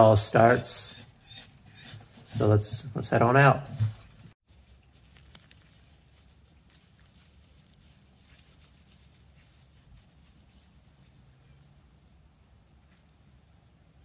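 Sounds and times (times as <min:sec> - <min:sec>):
footsteps in snow: 0:04.5 - 0:11.7.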